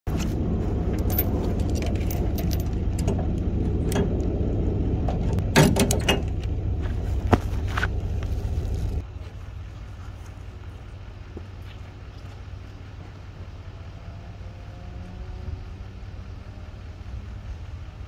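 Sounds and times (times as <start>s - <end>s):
steady low rumble: 0.1s - 18.0s
chains clinking and rattling: 0.9s - 3.2s
metal clank: 5.2s - 6.5s.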